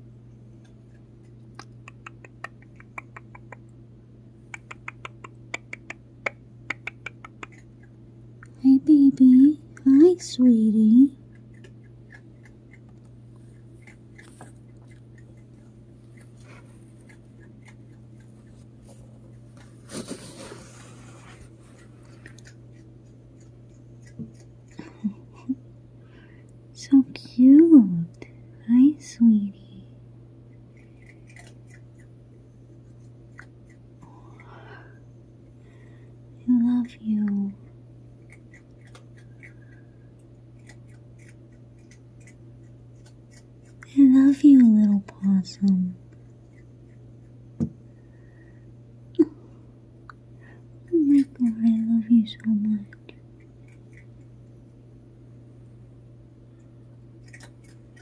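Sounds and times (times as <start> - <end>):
steady low hum: 0.0 - 58.0
animal chewing with crunches: 0.3 - 3.8, 4.4 - 8.6, 11.2 - 25.5, 30.5 - 34.6, 37.6 - 45.3, 46.0 - 47.5, 50.7 - 54.8, 56.5 - 58.0
opossum chewing wet clicks: 0.6 - 3.8, 4.4 - 8.6, 11.2 - 18.7.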